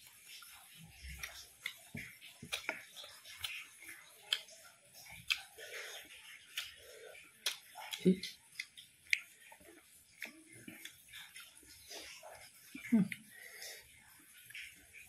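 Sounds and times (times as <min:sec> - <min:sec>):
chewing food: 0:00.0 - 0:15.0
wet mouth clicks and smacks: 0:01.2 - 0:06.8, 0:07.4 - 0:09.6.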